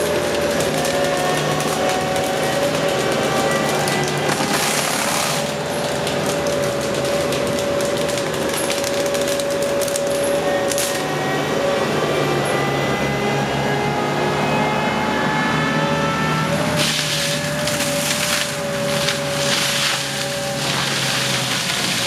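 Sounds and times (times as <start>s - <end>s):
wood cracking and ticking: 0.0s - 11.0s, 16.8s - 22.0s
forestry mulcher engine drone: 0.0s - 22.0s.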